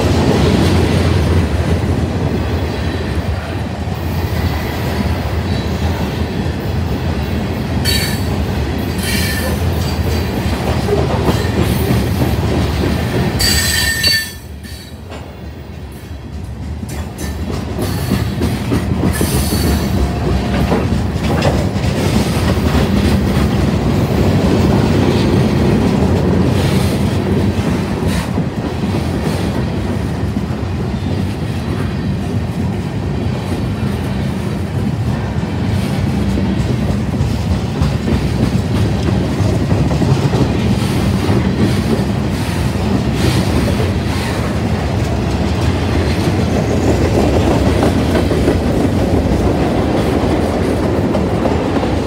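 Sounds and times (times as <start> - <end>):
freight train rumble: 0.0 - 52.0.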